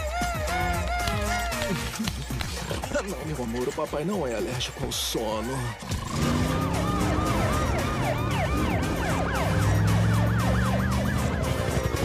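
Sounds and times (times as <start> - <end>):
emergency sirens wailing: 6.0 - 12.0.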